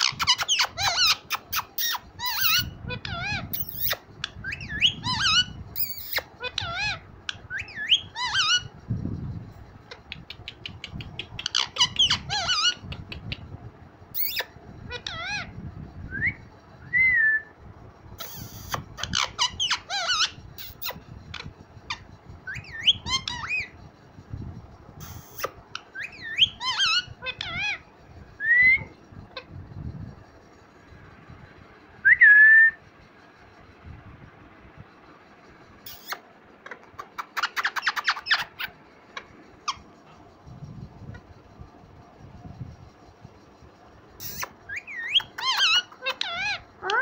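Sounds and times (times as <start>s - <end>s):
parakeets whistled calls: 0.0s - 10.0s, 10.6s - 13.5s, 14.1s - 17.6s, 18.2s - 24.3s, 25.0s - 29.9s, 31.4s - 33.8s, 35.0s - 41.3s, 43.7s - 47.0s.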